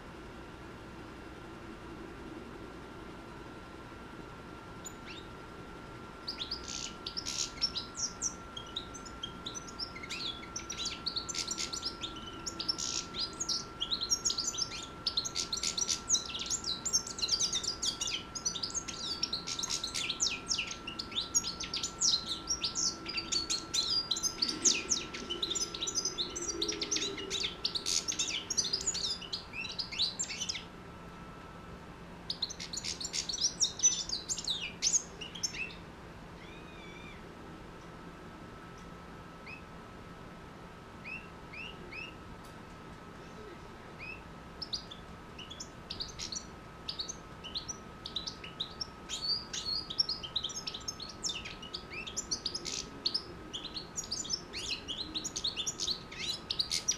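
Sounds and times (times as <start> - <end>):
finch twittering song: 4.8 - 5.4, 6.2 - 30.7, 32.2 - 37.2, 39.4 - 39.7, 41.0 - 42.2, 44.0 - 56.9.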